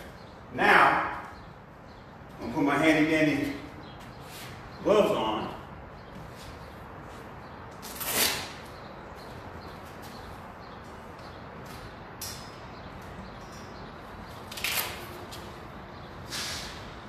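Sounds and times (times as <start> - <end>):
hook-and-loop strap ripping: 7.8 - 8.6, 14.5 - 15.2.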